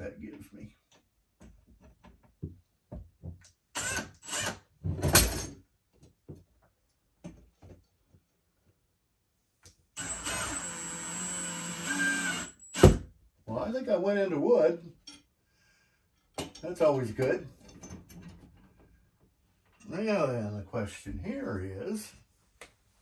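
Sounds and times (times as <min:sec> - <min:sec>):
cordless drill driving screw: 0:03.8 - 0:04.6, 0:10.0 - 0:13.0.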